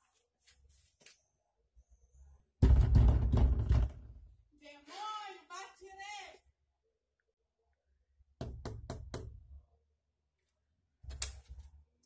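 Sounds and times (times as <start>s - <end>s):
knocking on wooden door: 2.6s - 4.2s, 8.4s - 9.4s.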